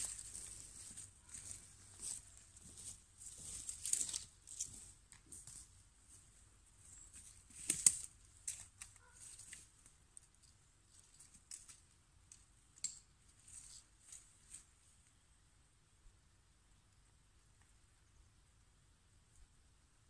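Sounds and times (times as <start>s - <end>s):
tarp rustling and crackling: 0.0s - 5.7s
footsteps on forest floor: 0.0s - 9.9s.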